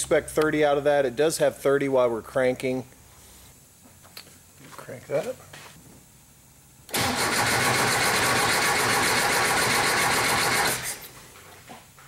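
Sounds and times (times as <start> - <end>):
starter cranking engine: 6.9 - 11.0.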